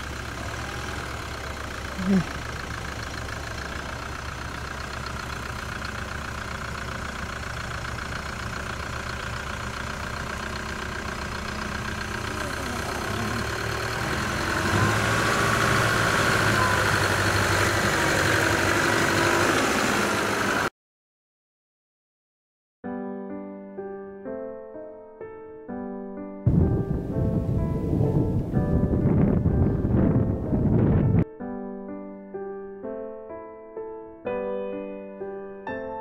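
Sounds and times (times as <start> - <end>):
truck engine at low revs: 0.0 - 20.7, 26.5 - 31.2.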